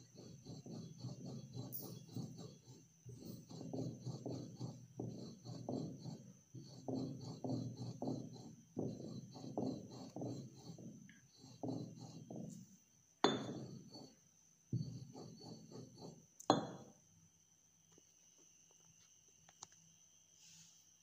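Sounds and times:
pestle grinding in a mortar: 0.0 - 12.5, 14.8 - 16.8.

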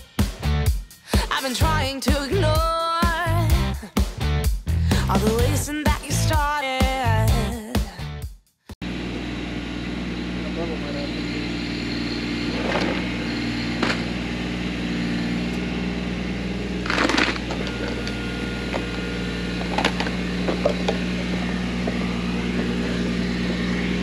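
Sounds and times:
machine engine running: 8.8 - 24.0.

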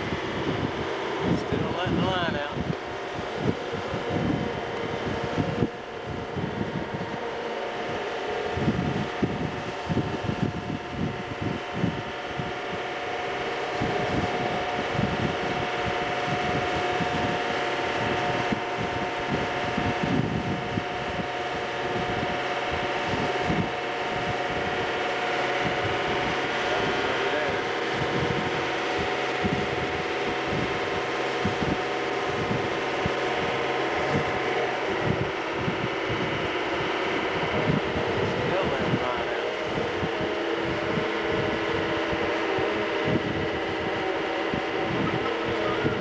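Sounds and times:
motorboat engine running: 0.0 - 46.0
wind buffeting microphone: 0.0 - 46.0.

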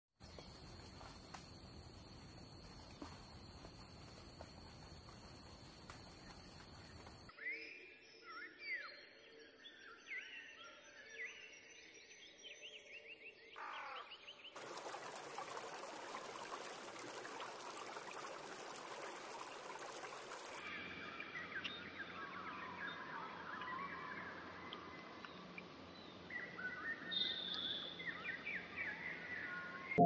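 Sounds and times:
dense wash of bird calls: 13.6 - 20.7.

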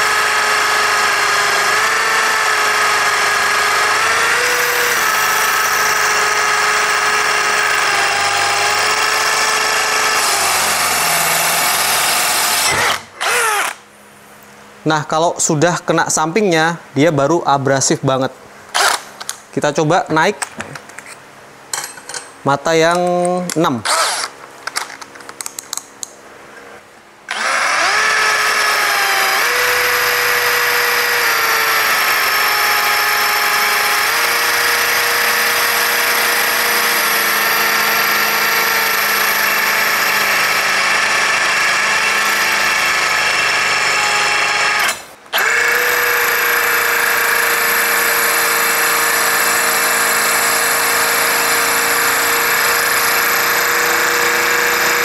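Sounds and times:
drill boring into tile: 0.0 - 13.8, 18.8 - 19.0, 23.9 - 24.3, 27.3 - 55.0.

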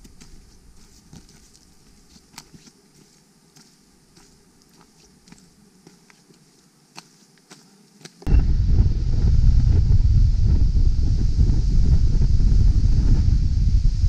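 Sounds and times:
footsteps crunching on stones and leaves: 0.0 - 8.3.

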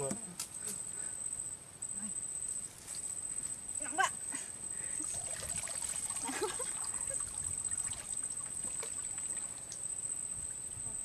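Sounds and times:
water dripping from a net: 5.0 - 10.7.

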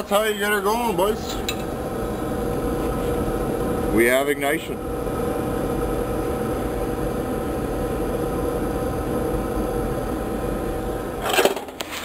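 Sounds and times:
blower motor hum: 0.0 - 12.0
oil burner firing: 0.2 - 4.0, 4.8 - 12.0.

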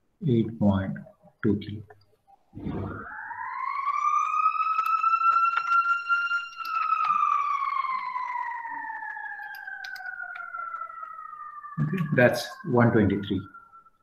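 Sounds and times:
siren-like wail: 2.5 - 14.0
faint clicks: 8.0 - 11.3.

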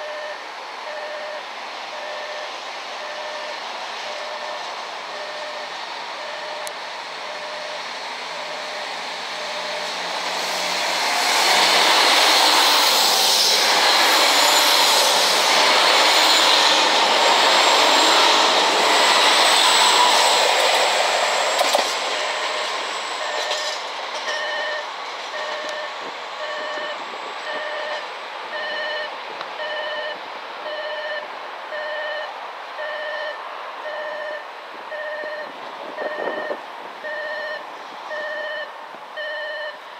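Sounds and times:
electronic warning beeps: 0.0 - 9.9, 22.2 - 23.7, 24.3 - 39.8
diesel train running past: 0.0 - 39.9.

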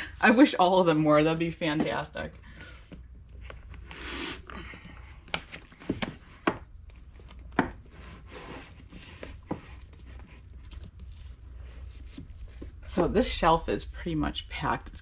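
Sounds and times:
book covers rubbing: 3.2 - 13.1.

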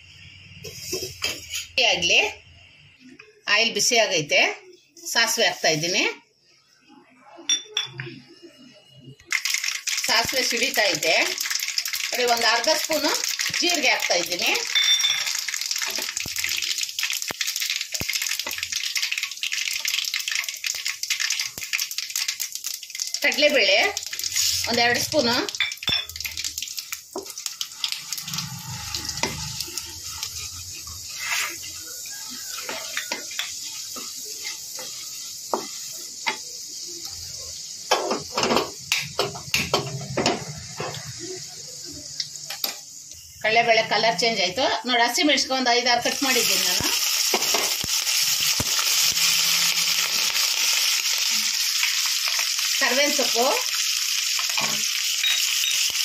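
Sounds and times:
seeds sizzling in hot oil: 0.0 - 3.0, 5.0 - 6.1, 9.2 - 56.0
wooden spatula stirring: 28.3 - 36.4.

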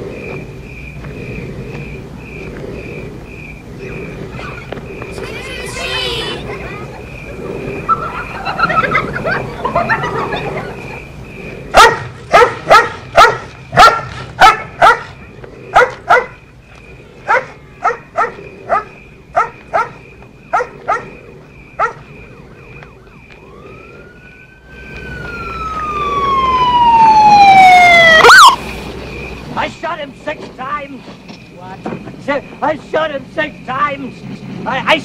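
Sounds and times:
siren wailing: 5.1 - 6.6, 22.0 - 28.6
dog barking: 11.7 - 16.4, 17.2 - 21.2, 21.8 - 22.0.

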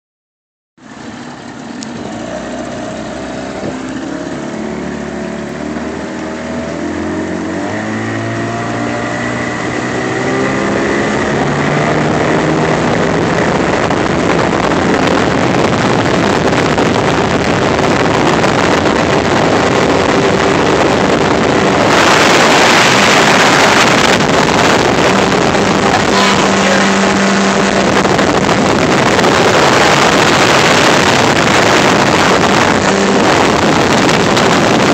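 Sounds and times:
outboard motor running: 0.8 - 34.9
rushing wind: 0.9 - 34.9.

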